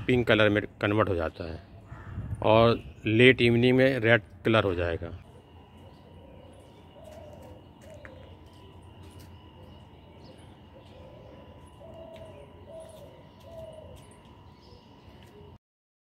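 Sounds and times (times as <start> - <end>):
faint steady hum: 0.0 - 15.6
dove cooing: 5.2 - 15.6.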